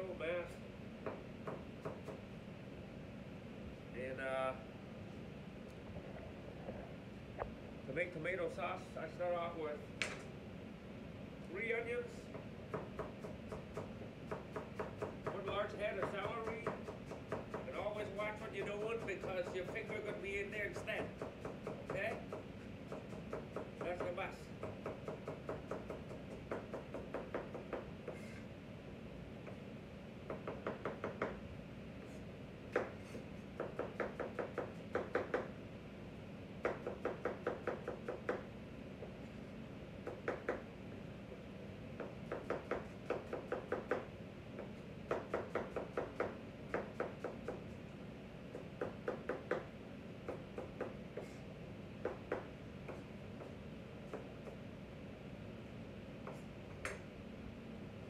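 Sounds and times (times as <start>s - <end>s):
knife chopping on cutting board: 12.3s - 17.8s, 32.7s - 35.5s, 42.0s - 47.7s.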